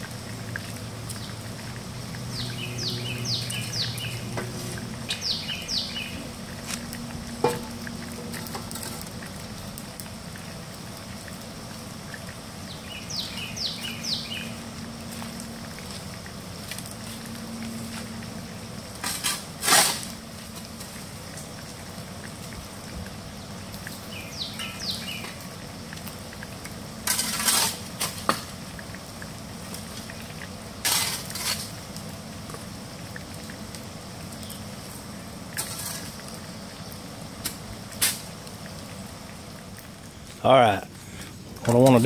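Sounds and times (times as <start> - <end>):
bird chirping: 2.3 - 4.4, 5.1 - 6.4, 12.7 - 14.6, 24.0 - 25.4
metal utensil scraping dutch oven: 19.0 - 20.1, 27.0 - 28.3, 30.8 - 31.8, 35.6 - 36.2.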